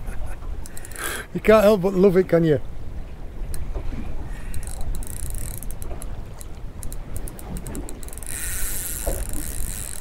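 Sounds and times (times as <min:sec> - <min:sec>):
boat rumble: 0:00.0 - 0:10.0
low wind: 0:00.0 - 0:10.0
fishing reel clicking: 0:00.6 - 0:01.1, 0:04.3 - 0:10.0.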